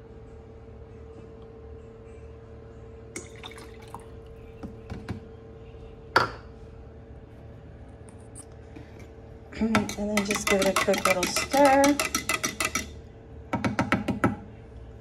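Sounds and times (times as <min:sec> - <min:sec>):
faint steady hum: 0:00.0 - 0:15.0
liquid trickling and dripping: 0:03.2 - 0:04.2.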